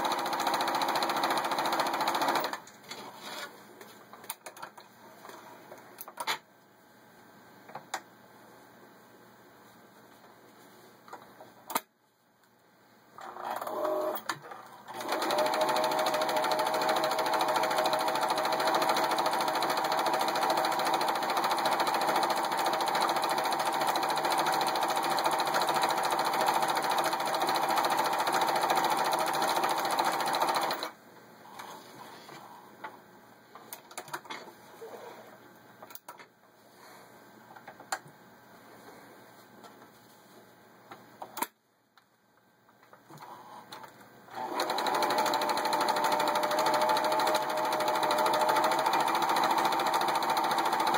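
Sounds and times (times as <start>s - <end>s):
sewing machine stitching: 0.0s - 2.6s, 13.2s - 30.9s, 44.3s - 50.9s.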